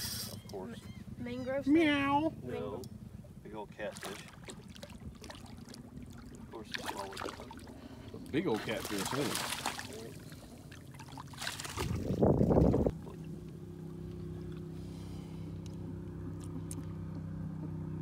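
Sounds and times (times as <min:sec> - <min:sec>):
boat motor hum: 0:00.0 - 0:18.0
fish thrashing splash: 0:03.9 - 0:07.7, 0:08.4 - 0:13.2.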